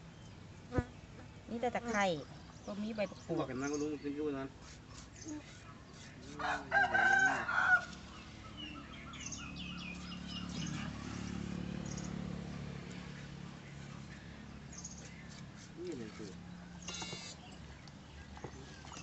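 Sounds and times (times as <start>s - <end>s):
rooster crowing: 6.4s - 8.0s.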